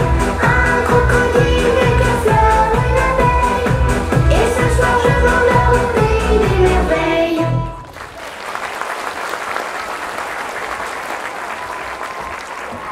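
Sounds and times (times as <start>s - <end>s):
stage dance music: 0.0s - 8.2s
audience applause: 7.8s - 12.9s.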